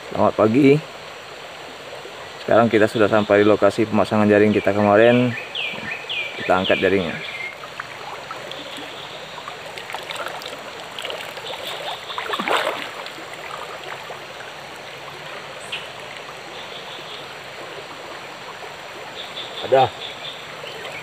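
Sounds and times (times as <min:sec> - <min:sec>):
stream trickling: 0:00.0 - 0:21.0
water splashing and dripping: 0:05.7 - 0:19.9.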